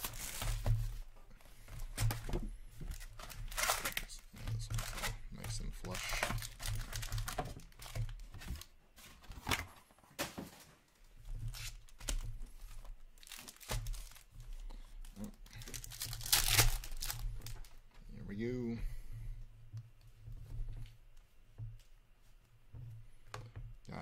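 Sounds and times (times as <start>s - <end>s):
foil packs tearing and crinkling: 0.0s - 0.8s, 2.9s - 8.7s, 11.5s - 17.6s.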